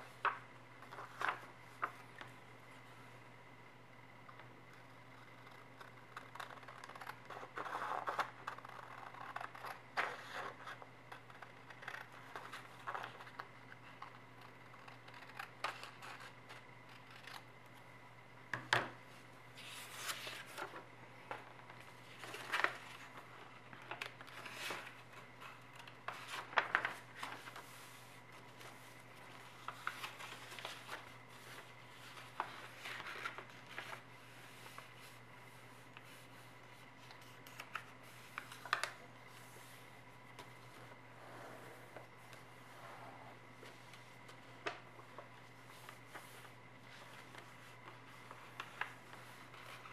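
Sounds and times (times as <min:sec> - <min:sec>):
paper rustling and creasing: 0:00.0 - 0:03.0, 0:19.1 - 0:49.9
scissors cutting paper: 0:04.8 - 0:13.4, 0:14.0 - 0:17.5.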